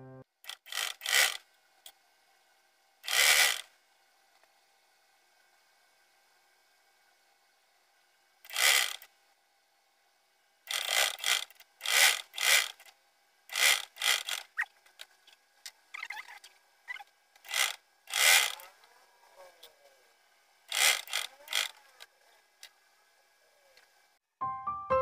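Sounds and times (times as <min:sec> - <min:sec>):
sewing machine clatter: 0:00.5 - 0:01.4, 0:10.7 - 0:12.9, 0:13.5 - 0:15.1, 0:17.4 - 0:18.6, 0:20.7 - 0:21.8.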